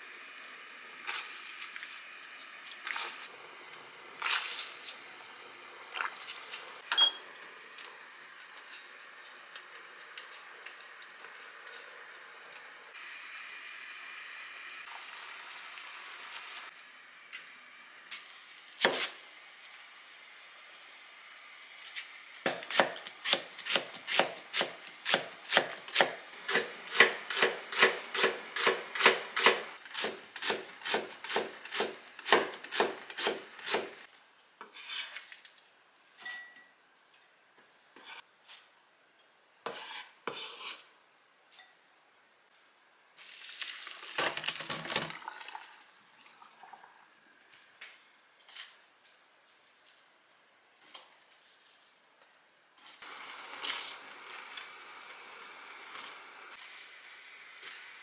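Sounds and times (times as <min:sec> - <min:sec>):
knife slicing onion on wooden board: 0:22.4 - 0:34.0.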